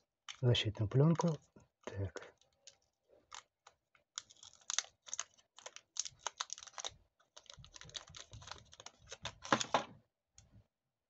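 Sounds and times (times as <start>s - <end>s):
plastic film crackling: 0.2s - 1.4s, 2.3s - 9.8s.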